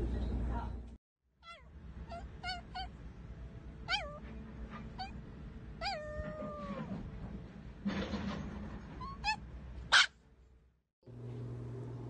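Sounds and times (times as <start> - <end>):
small dog whining: 1.4 - 3.0, 3.8 - 5.2, 5.8 - 7.0.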